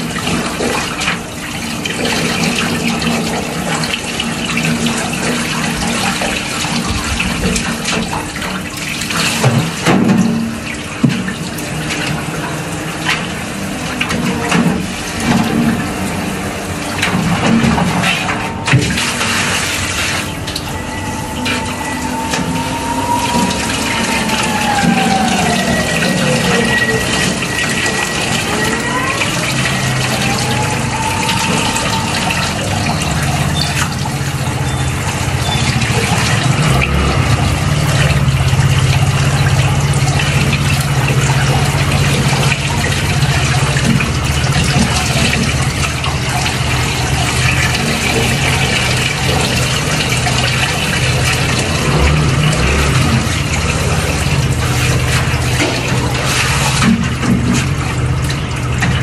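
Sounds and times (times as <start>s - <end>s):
low steady hum: 0.0s - 59.0s
water rushing from shower head: 0.0s - 59.0s
faint falling and rising tone: 18.5s - 39.9s.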